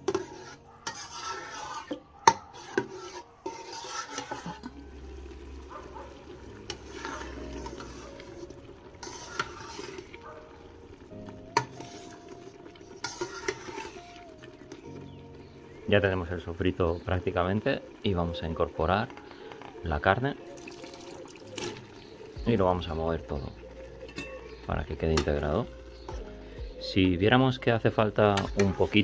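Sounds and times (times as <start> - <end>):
metal spoon stirring thick sauce: 0.0 - 26.4, 27.9 - 29.0
spoon clinking against pot: 24.0 - 25.5.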